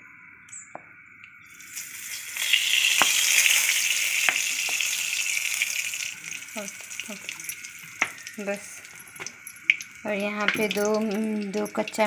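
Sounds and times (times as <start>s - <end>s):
oil sizzling in pan: 1.5s - 12.0s.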